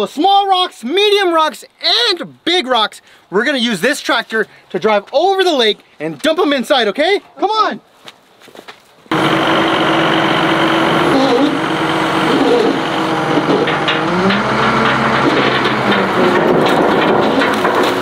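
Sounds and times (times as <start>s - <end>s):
wheel loader diesel engine: 9.1s - 18.0s.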